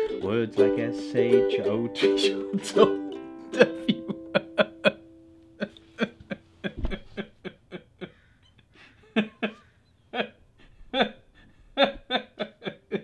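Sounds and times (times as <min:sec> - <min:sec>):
ukulele chord ringing: 0:00.0 - 0:05.4
dull thump: 0:06.7 - 0:07.3.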